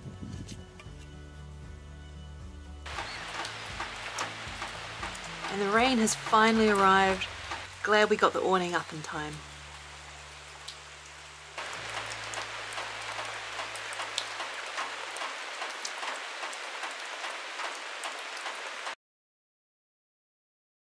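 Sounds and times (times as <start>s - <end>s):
rain pattering on an awning: 2.9s - 19.0s.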